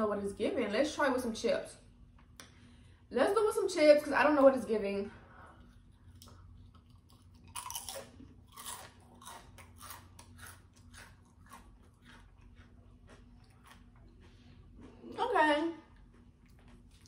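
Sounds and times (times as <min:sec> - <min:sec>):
chip crunching and chewing: 0:05.6 - 0:17.0.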